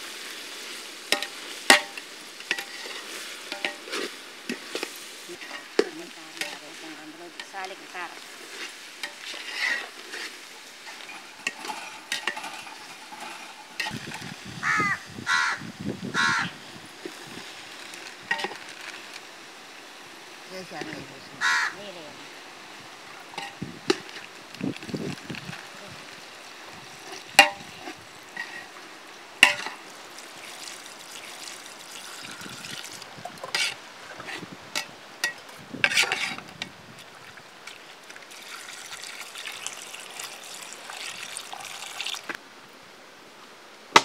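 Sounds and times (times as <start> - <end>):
liquid sloshing in pot: 7.4 - 14.4.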